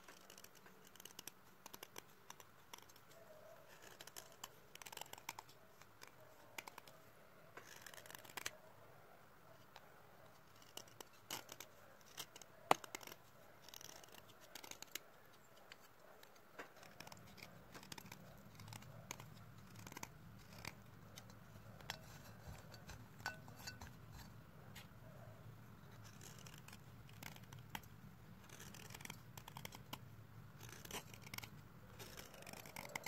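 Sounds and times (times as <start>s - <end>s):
chalk scraping and crunching on metal: 16.6s - 24.9s.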